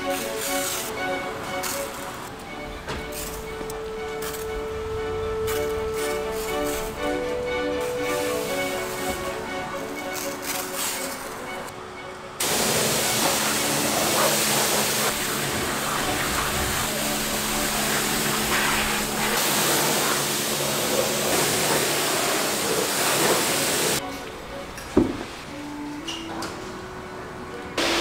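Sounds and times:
pressure washer spraying water: 7.8s - 11.5s, 12.4s - 24.0s.

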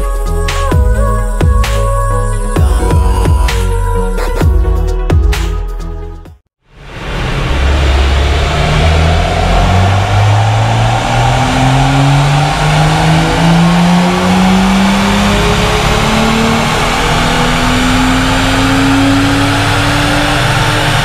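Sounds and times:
car engine revving on dyno: 6.7s - 21.0s.

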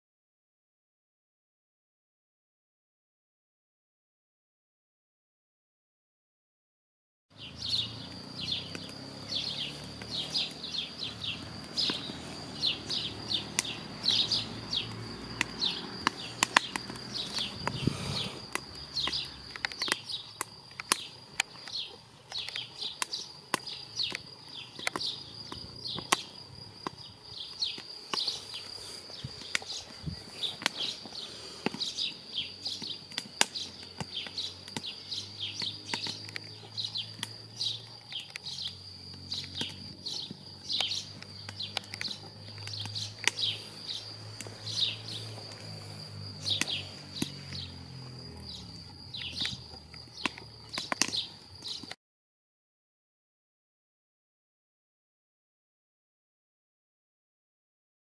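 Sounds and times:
birds chirping: 7.3s - 52.0s
wood fire crackling in stove: 7.4s - 52.0s.

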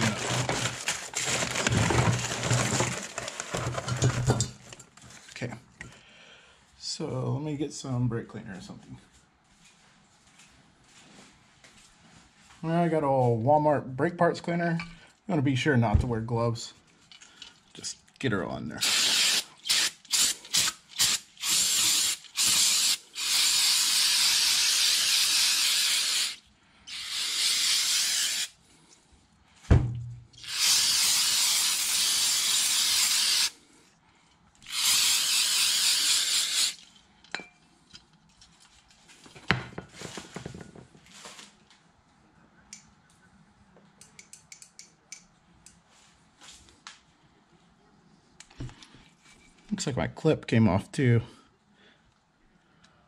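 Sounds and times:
aerosol spraying: 18.8s - 26.4s, 27.0s - 28.6s, 30.4s - 33.6s, 34.7s - 36.8s
thump: 29.6s - 30.2s.

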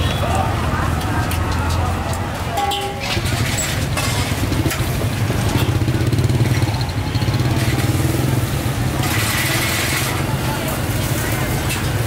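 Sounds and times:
street traffic hum: 0.0s - 12.0s
motorbike engine running: 4.4s - 10.0s.

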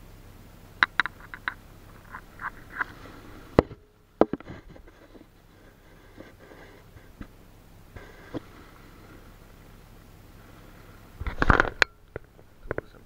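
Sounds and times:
plastic knocking against camera: 0.8s - 2.9s.

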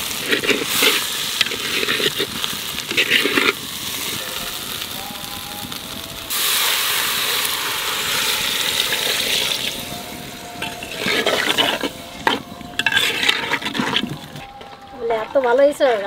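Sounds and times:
ladle stirring curry: 0.0s - 4.2s, 8.2s - 14.6s
vegetables sizzling in pot: 0.0s - 14.5s
water hissing on hot pot: 0.0s - 14.5s.

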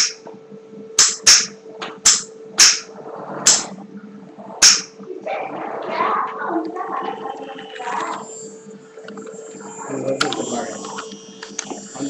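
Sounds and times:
sharp cracks: 0.0s - 0.2s, 1.0s - 3.8s, 4.6s - 5.0s
low hum: 0.0s - 12.0s.

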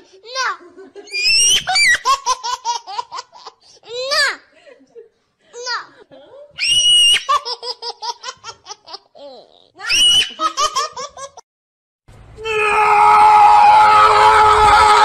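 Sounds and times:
squealing laughter: 1.0s - 3.1s, 6.6s - 11.4s
shrill held cry: 6.6s - 7.4s, 9.8s - 10.6s, 12.4s - 15.0s.

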